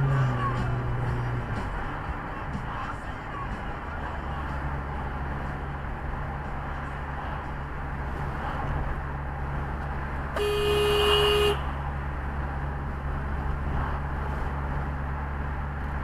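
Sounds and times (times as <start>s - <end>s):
road and engine hum: 0.0s - 16.0s
car horn blast: 10.4s - 11.8s.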